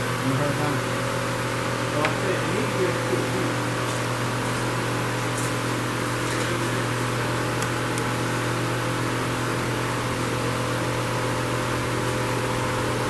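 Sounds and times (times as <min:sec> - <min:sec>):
electric fan running: 0:00.0 - 0:13.0.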